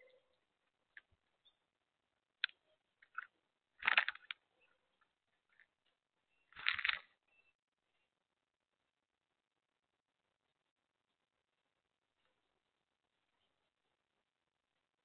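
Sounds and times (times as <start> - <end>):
doves pecking seed clicks: 2.4 - 4.4
seed rattling: 2.4 - 4.4, 6.6 - 7.0.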